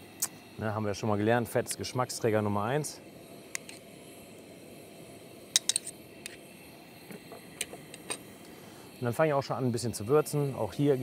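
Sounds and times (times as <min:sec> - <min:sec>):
low background hum: 0:00.0 - 0:11.0
spoon tapping a bowl and pan: 0:05.6 - 0:05.9.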